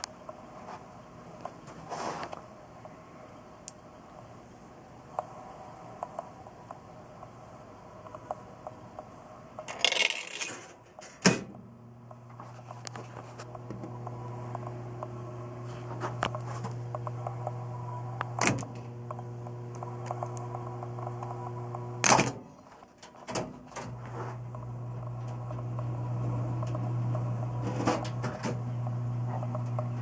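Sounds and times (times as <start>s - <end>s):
jukebox low hum: 0.0s - 30.0s
coin rattling through mechanism: 9.7s - 10.8s
coin mechanism clunk: 9.7s - 11.5s.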